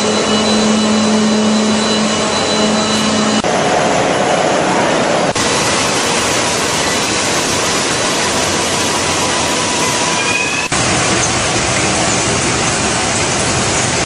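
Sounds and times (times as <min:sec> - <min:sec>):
factory machinery roaring: 0:00.0 - 0:14.0.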